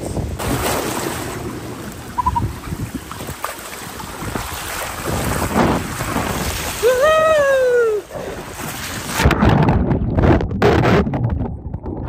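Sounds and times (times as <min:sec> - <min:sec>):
waves: 0:00.0 - 0:09.8
wind on microphone: 0:02.2 - 0:12.0
person calling out: 0:06.8 - 0:08.1.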